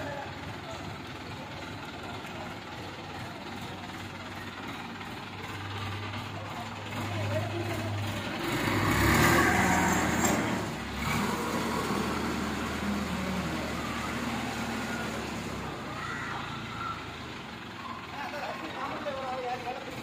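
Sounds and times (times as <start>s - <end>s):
crane engine running under load: 0.0s - 20.0s.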